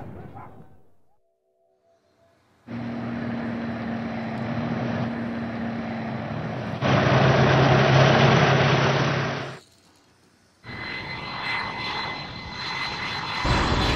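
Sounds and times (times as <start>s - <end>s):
tank engine rumble: 2.7s - 9.6s.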